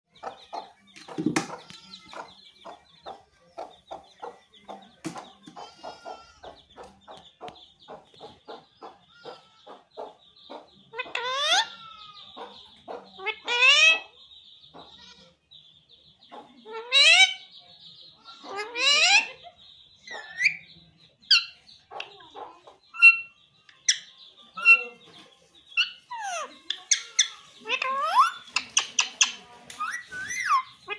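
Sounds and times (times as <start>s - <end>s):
parakeet chirps: 25.8s - 30.9s.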